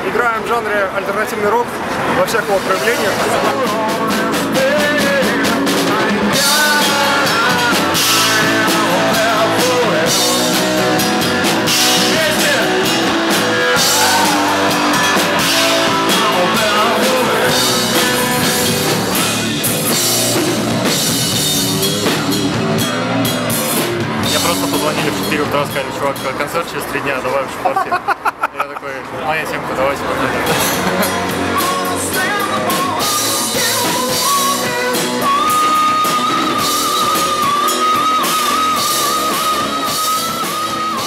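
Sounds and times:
distorted electric guitars: 1.8s - 26.5s, 30.3s - 41.0s
drum kit with crashing cymbals: 2.6s - 26.4s, 30.5s - 41.0s
bass guitar: 2.7s - 26.7s, 30.3s - 41.0s
man singing: 3.0s - 19.2s, 30.7s - 41.0s.

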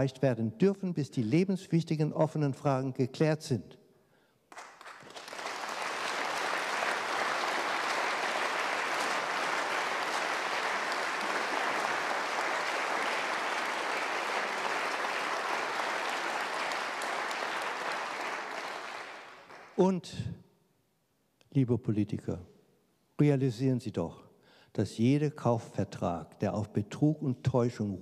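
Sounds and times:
audience applauding: 4.5s - 19.8s.

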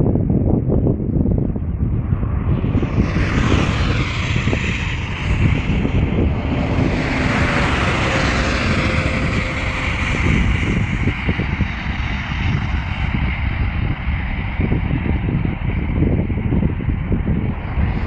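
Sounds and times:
road traffic rumble: 0.6s - 18.0s
vehicle passing by: 2.4s - 11.6s.

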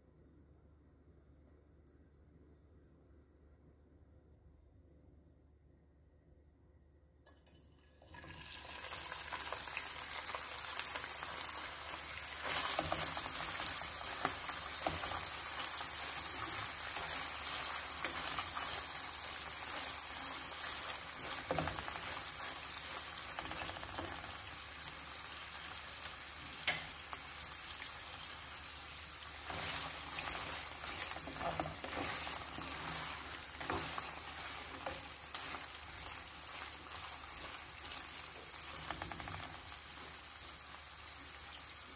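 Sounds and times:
meat sizzling in oil: 8.1s - 41.9s
wooden spoon stirring in pan: 9.4s - 41.9s.

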